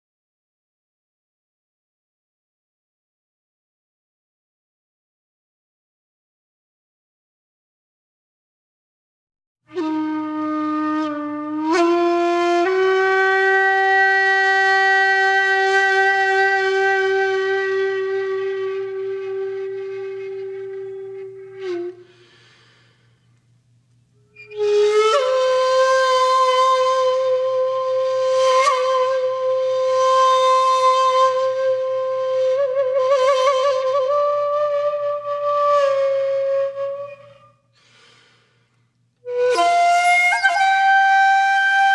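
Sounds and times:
flute-like long held notes: 0:09.7 - 0:23.2, 0:24.2 - 0:37.7, 0:39.2 - 0:41.9.

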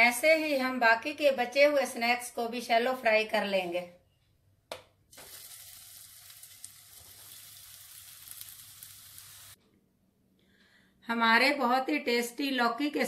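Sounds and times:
food sizzling in oil: 0:05.1 - 0:09.6.

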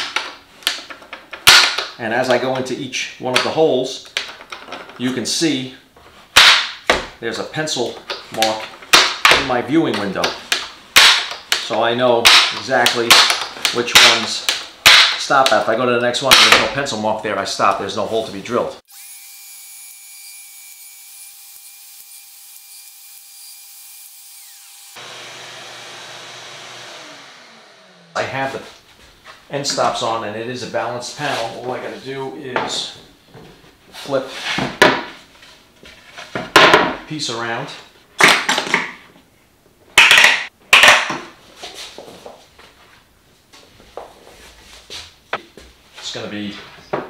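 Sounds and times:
router motor whining: 0:18.9 - 0:28.2.

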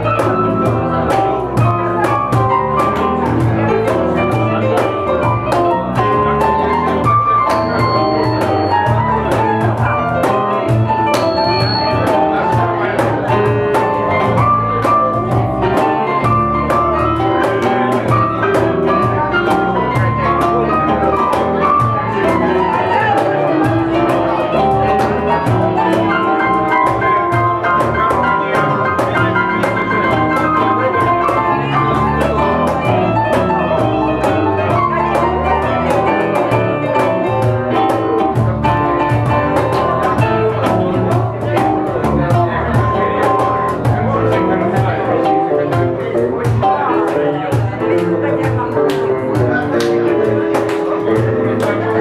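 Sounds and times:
electric bass: 0:00.0 - 0:52.0
electric guitar: 0:00.0 - 0:52.0
keyboard melody: 0:00.0 - 0:52.0.

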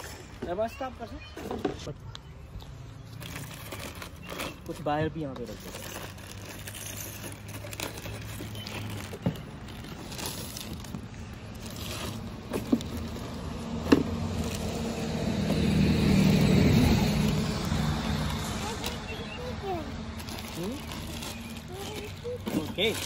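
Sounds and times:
plastic wrap crinkling: 0:03.1 - 0:15.5, 0:16.1 - 0:23.0
car passing: 0:07.2 - 0:21.6.

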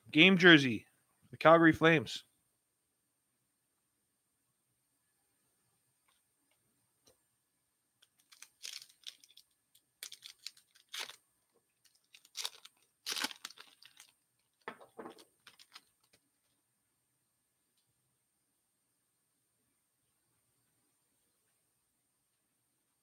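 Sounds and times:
foil wrapper tearing and crinkling: 0:08.0 - 0:11.2, 0:11.8 - 0:16.1.

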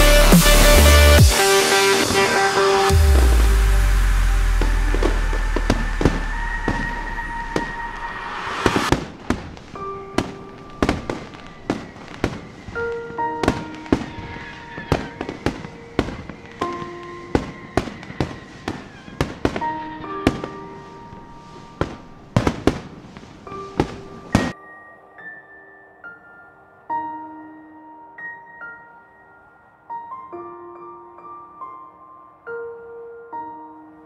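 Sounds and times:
fireworks bursting: 0:00.0 - 0:24.6
soft music with held notes: 0:08.9 - 0:34.0.

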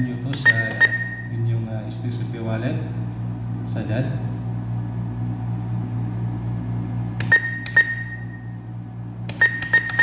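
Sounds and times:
steady low hum: 0:00.0 - 0:10.0
keypad beeping: 0:00.4 - 0:01.3, 0:07.2 - 0:08.4, 0:09.3 - 0:10.0.

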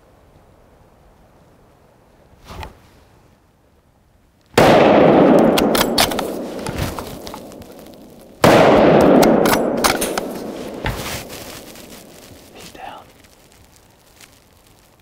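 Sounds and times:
rifle shots: 0:04.6 - 0:12.6.

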